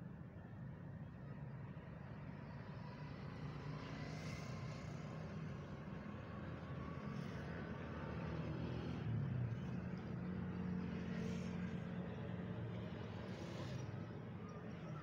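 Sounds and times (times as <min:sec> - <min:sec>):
road traffic hum: 0:04.4 - 0:15.0.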